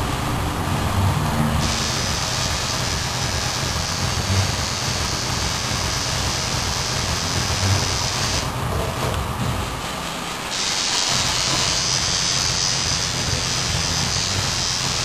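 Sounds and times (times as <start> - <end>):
tattoo machine buzzing: 1.6 - 8.5, 10.5 - 15.0.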